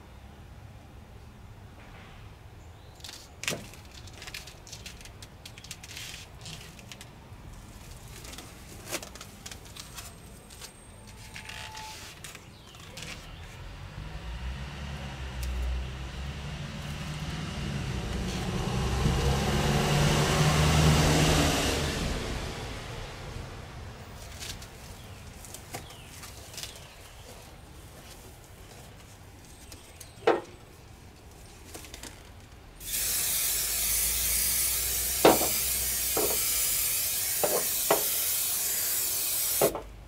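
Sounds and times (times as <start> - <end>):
motor vehicle passing: 13.0 - 27.4.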